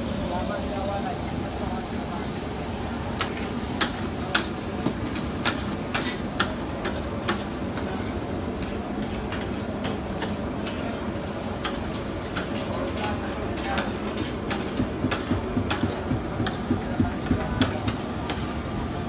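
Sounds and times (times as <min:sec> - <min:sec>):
steady background noise: 0:00.0 - 0:19.0.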